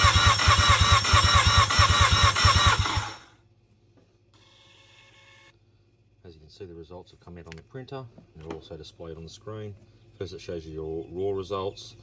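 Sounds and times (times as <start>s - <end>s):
engine cranking on starter motor: 0.0s - 3.4s.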